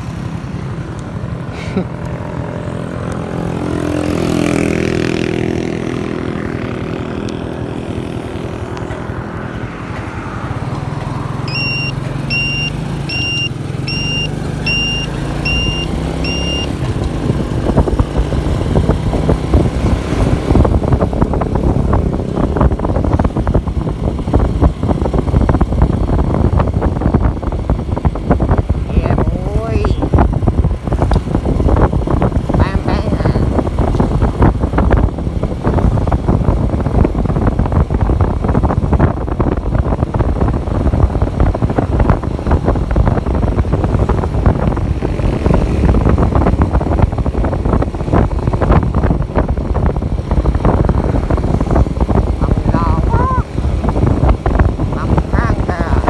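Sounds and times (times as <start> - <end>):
motorcycle engine running: 0.0 - 56.0
short high beeps: 11.4 - 16.8
wind buffeting on microphone: 15.3 - 56.0.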